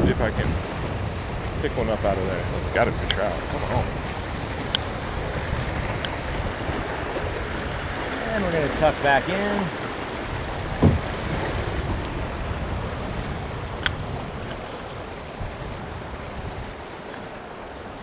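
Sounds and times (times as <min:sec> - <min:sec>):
river water rushing: 0:00.0 - 0:18.0
low thump: 0:10.7 - 0:12.0.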